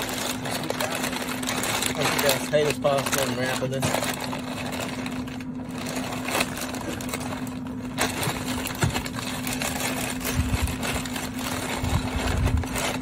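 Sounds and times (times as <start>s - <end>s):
paper rustling and crinkling: 0.0s - 13.0s
steady low hum: 0.0s - 13.0s.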